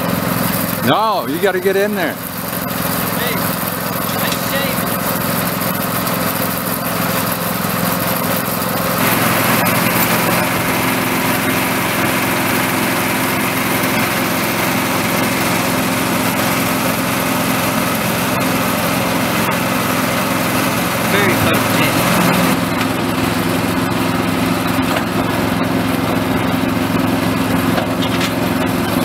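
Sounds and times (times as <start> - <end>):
small engine running: 0.0 - 29.0.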